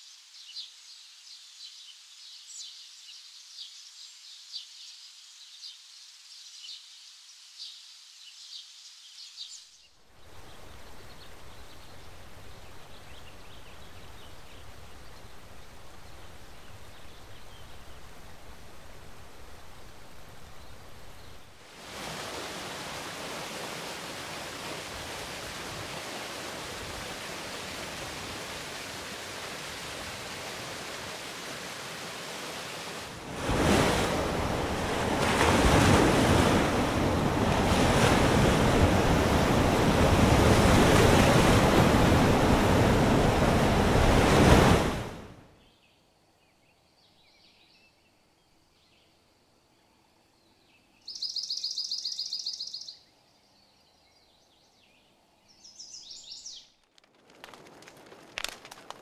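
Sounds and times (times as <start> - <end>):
ocean waves: 18.5 - 45.4
falling water rushing: 21.7 - 45.2.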